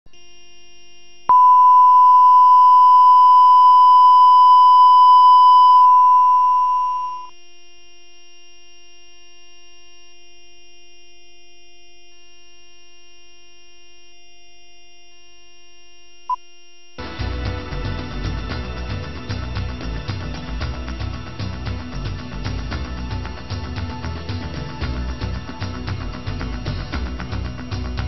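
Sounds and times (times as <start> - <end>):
faint steady hum: 0.1 - 28.0
reference tone: 1.3 - 7.4.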